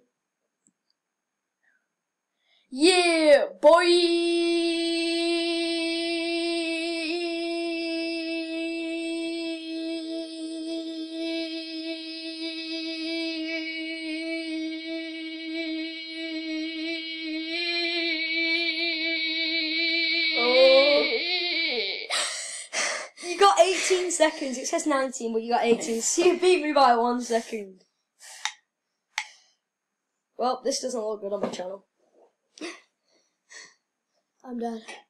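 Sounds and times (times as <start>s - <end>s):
boy holding long shouted note: 4.2s - 22.1s.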